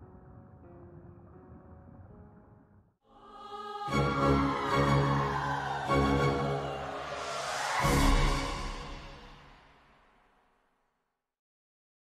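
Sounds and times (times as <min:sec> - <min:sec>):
sustained music chords: 0:03.8 - 0:09.7.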